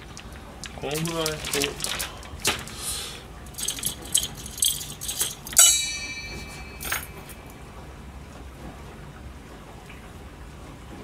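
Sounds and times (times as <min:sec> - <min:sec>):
metallic knife clatter: 0:03.5 - 0:07.6.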